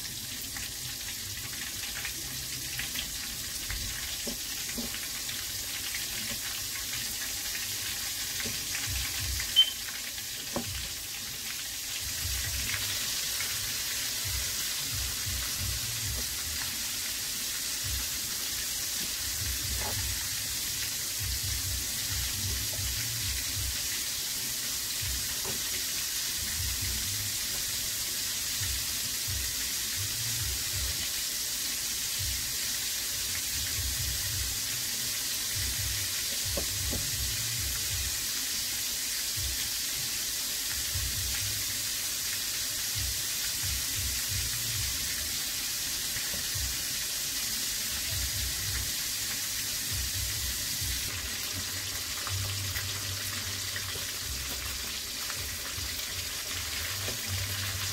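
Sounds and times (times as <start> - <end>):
hot oil sizzling: 0.0 - 57.9.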